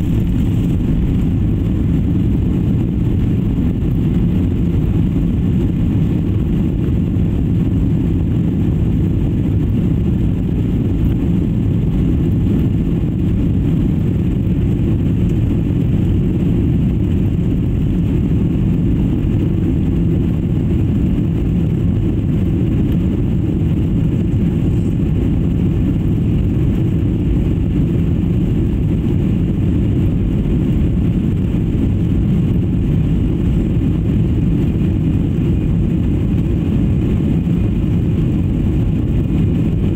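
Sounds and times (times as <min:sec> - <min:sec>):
rushing air: 0:00.0 - 0:04.6
jet engines rumbling: 0:00.0 - 0:39.9.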